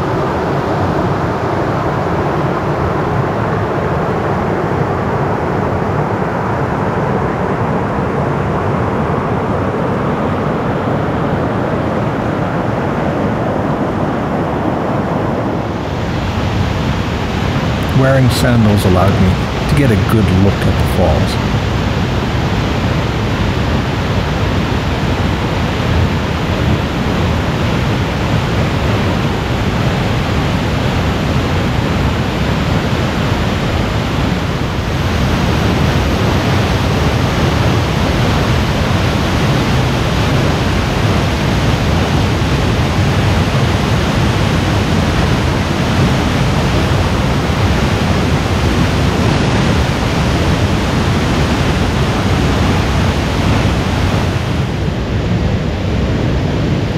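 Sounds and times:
waterfall rushing: 0:15.8 - 0:21.5.

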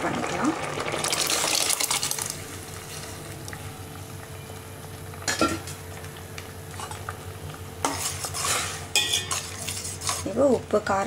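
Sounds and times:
pot bubbling on stove: 0:00.0 - 0:11.0
metal clink against pot: 0:07.8 - 0:10.3.

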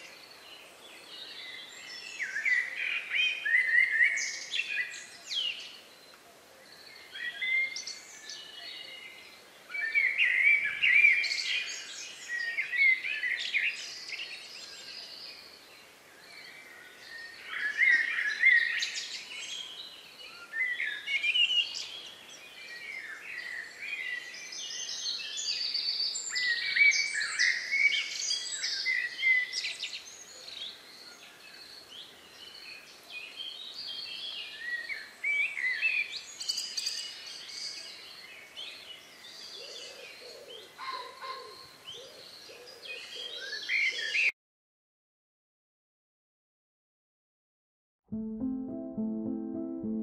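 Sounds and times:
birds singing and chirping: 0:33.5 - 0:44.3.

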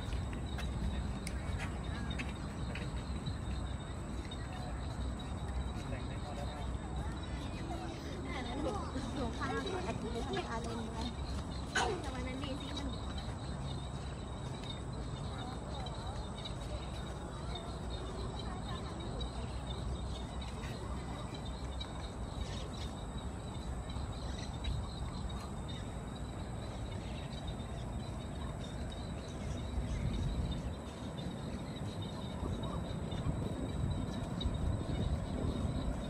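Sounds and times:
steady low rumble: 0:18.2 - 0:36.0.

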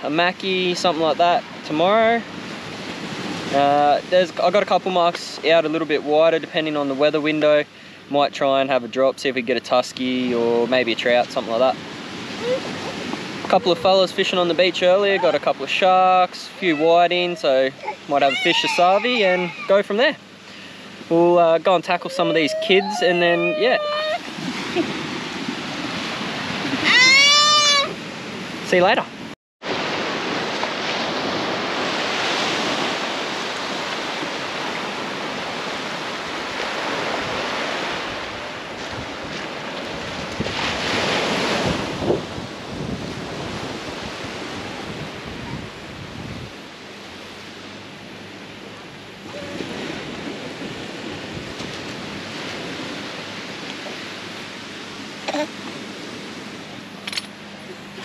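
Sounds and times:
surf washing on beach: 0:00.0 - 0:58.0
wind on microphone: 0:11.7 - 0:15.6, 0:21.7 - 0:46.7.

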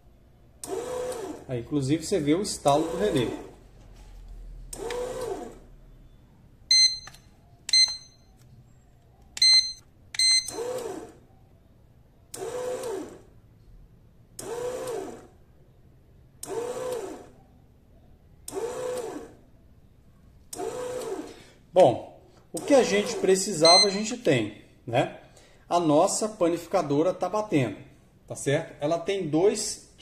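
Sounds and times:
bread maker motor whining: 0:00.6 - 0:01.5, 0:02.4 - 0:03.7, 0:04.6 - 0:05.9, 0:10.5 - 0:11.2, 0:12.3 - 0:13.3, 0:14.4 - 0:15.4, 0:16.4 - 0:17.4, 0:18.4 - 0:19.4, 0:20.5 - 0:21.6, 0:22.6 - 0:23.9
short electronic beeps: 0:06.0 - 0:08.3, 0:09.4 - 0:10.6, 0:23.6 - 0:24.1.

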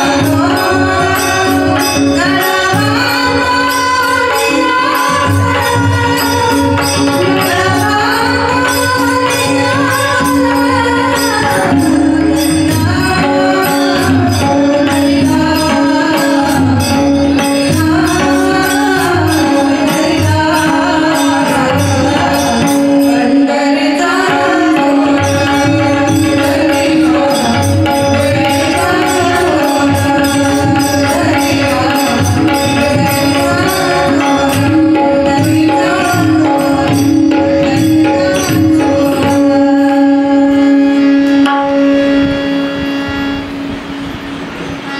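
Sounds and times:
woman singing devotional song: 0:00.0 - 0:42.1
harmonium: 0:00.0 - 0:44.9
steady drone: 0:09.8 - 0:44.9
hand drum beat: 0:25.6 - 0:39.6.

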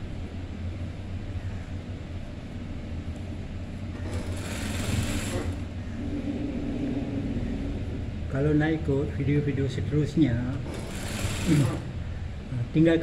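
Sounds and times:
sewing machine motor humming: 0:03.8 - 0:05.8, 0:10.4 - 0:12.0.

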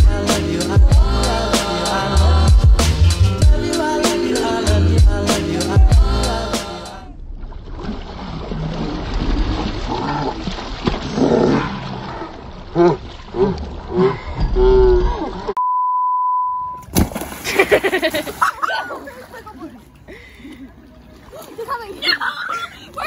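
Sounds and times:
censor bleep: 0:15.6 - 0:16.8
girls yelling and shrieking: 0:21.5 - 0:23.0.

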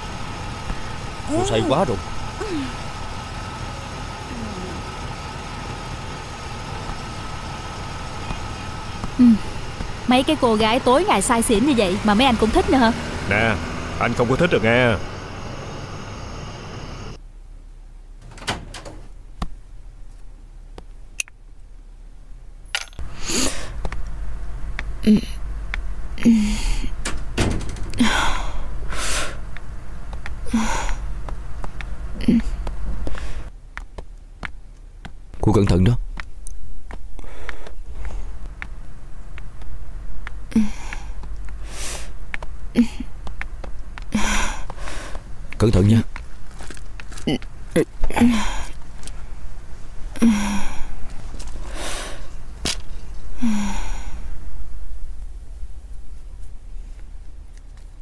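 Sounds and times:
thin steady whine: 0:00.0 - 0:20.8
car engine idling: 0:00.0 - 0:54.4
woman gasping and sighing: 0:50.2 - 0:51.0, 0:53.4 - 0:54.2.

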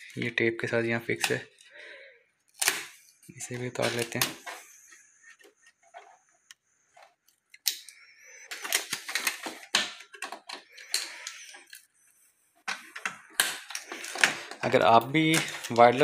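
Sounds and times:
packing material crackling and rustling: 0:12.7 - 0:16.0.

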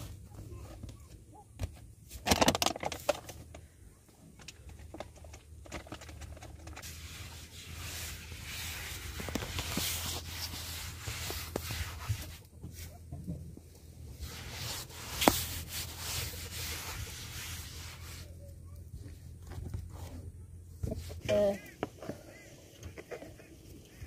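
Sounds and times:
hand rubbing flour on tabletop: 0:06.8 - 0:13.0, 0:14.1 - 0:18.5.

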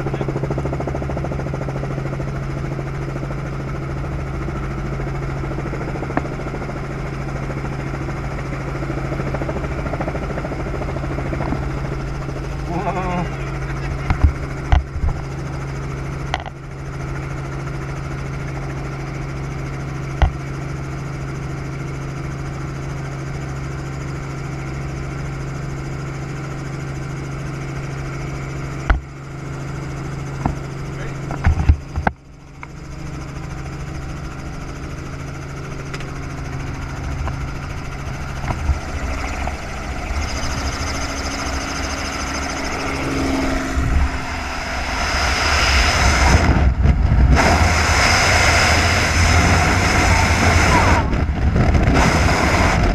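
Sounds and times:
helicopter engine and rotors droning: 0:00.0 - 0:52.9
rush of wind: 0:35.8 - 0:52.9.

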